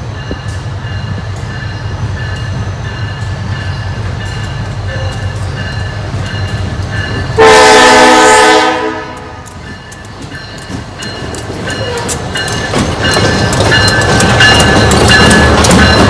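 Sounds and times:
train running rumble: 0:00.0 - 0:16.0
locomotive horn blast: 0:07.4 - 0:09.4
wheels clicking over rail joints: 0:09.1 - 0:16.0.

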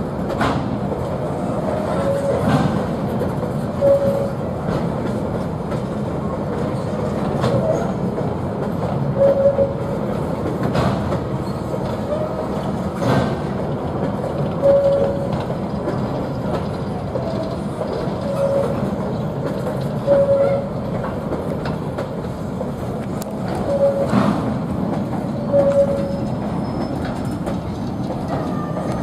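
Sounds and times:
freight train wagons rumbling: 0:00.0 - 0:29.0
wheels clacking over rail joints: 0:00.0 - 0:29.0
train wheel squeals: 0:01.7 - 0:02.9, 0:03.7 - 0:04.5, 0:06.7 - 0:08.1, 0:09.2 - 0:10.0, 0:11.4 - 0:13.5, 0:14.4 - 0:20.9, 0:23.4 - 0:29.0.

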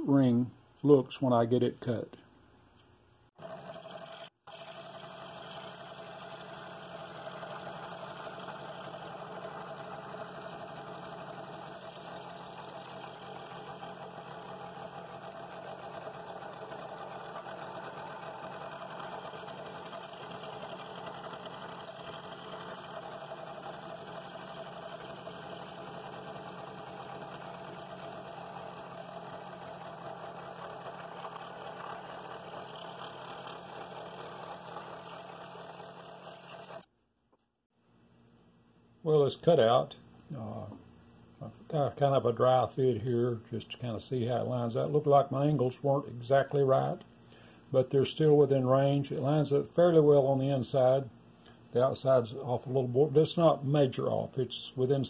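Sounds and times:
scroll saw cutting wood: 0:03.4 - 0:36.9.

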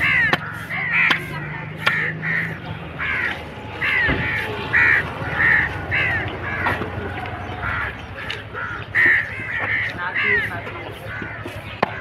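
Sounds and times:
crows cawing: 0:00.0 - 0:12.0
dull thump: 0:03.9 - 0:04.6.

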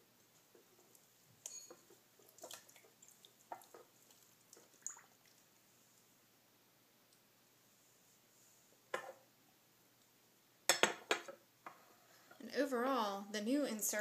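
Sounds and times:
wet cloth squishing in water: 0:01.0 - 0:05.6.

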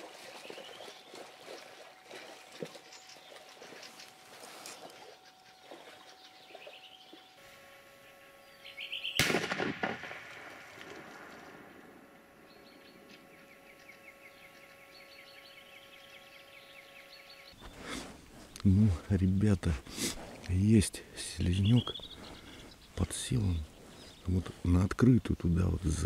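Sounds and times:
bird calls: 0:00.0 - 0:07.4, 0:08.0 - 0:09.3, 0:10.8 - 0:26.0
shotgun shot: 0:09.2 - 0:11.7.

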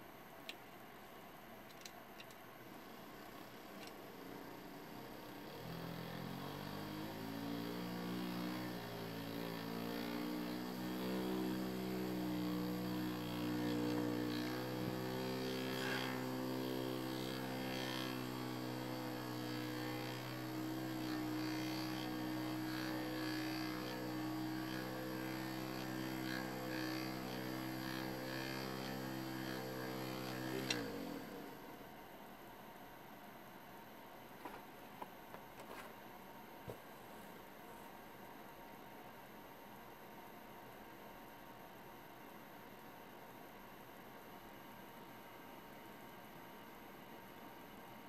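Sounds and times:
electric motors humming: 0:01.8 - 0:31.9.

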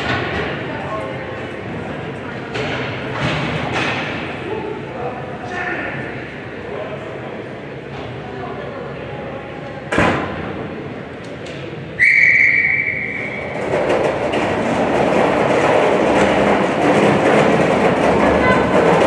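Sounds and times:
players and spectators voices: 0:00.0 - 0:19.0
referee whistle: 0:12.0 - 0:13.5.

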